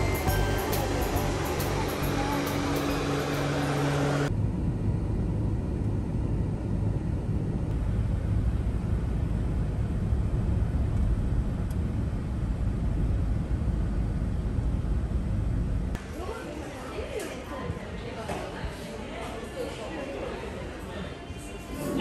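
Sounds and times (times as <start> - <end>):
music: 0.0 - 4.3.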